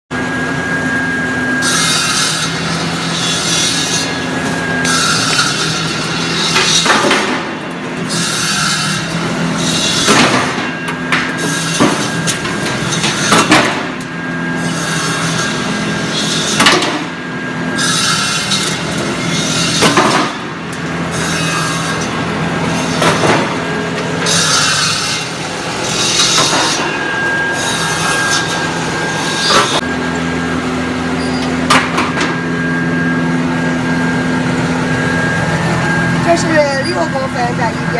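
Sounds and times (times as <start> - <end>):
rasping cutting noise: 1.6 - 10.6, 17.7 - 29.9
machine motor hum: 9.0 - 37.9.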